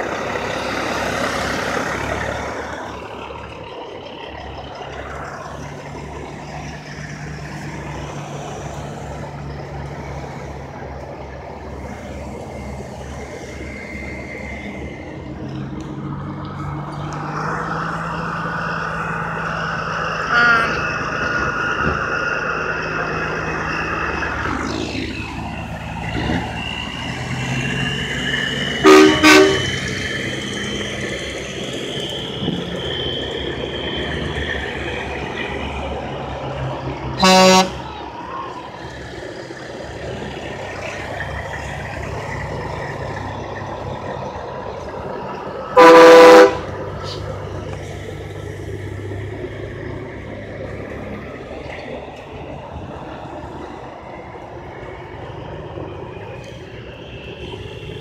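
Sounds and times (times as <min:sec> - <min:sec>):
diesel trucks rolling past: 0:00.0 - 0:58.0
truck horn blasts: 0:20.2 - 0:21.0, 0:28.7 - 0:29.9, 0:37.2 - 0:37.8, 0:45.7 - 0:46.8.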